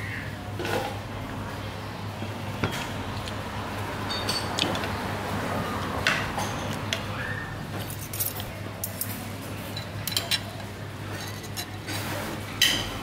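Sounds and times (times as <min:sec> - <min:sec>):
cutlery clinking on dishes: 0:07.8 - 0:11.9, 0:12.6 - 0:13.0.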